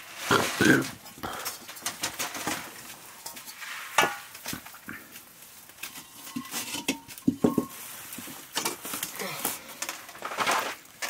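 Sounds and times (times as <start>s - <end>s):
metal plate clinking and knocking: 5.8s - 8.8s.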